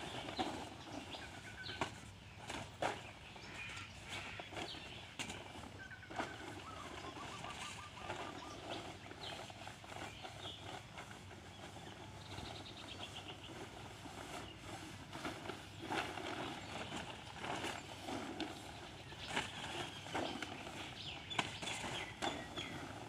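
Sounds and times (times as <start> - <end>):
birds chirping: 0.0 - 23.0
plastic tarp rustling: 0.0 - 23.0
bird trill: 5.7 - 9.5.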